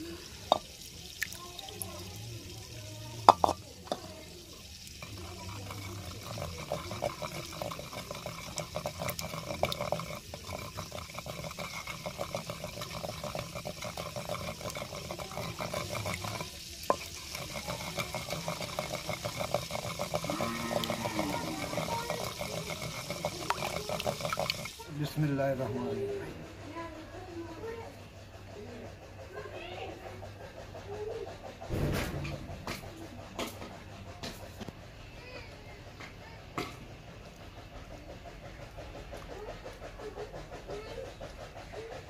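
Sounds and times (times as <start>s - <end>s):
pestle scraping paste in mortar: 3.2s - 4.1s, 4.9s - 27.8s, 36.0s - 42.0s
sharp knock: 31.7s - 32.6s.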